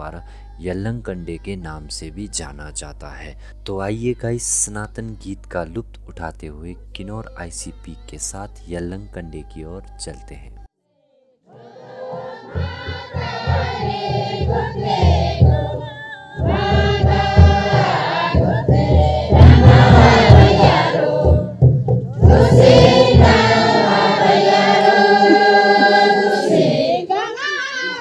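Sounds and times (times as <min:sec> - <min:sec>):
group of voices singing: 0:11.5 - 0:28.0
low repeated beat: 0:12.2 - 0:15.8, 0:16.4 - 0:26.6.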